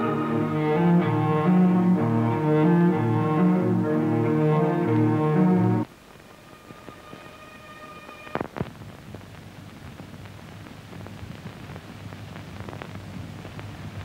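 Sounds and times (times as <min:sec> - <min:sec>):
steady hiss: 0:00.0 - 0:14.0
faint clicks and crackle: 0:05.8 - 0:14.0.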